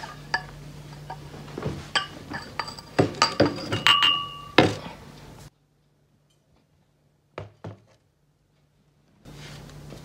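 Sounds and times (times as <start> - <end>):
wine glasses clinking: 1.9 - 4.7.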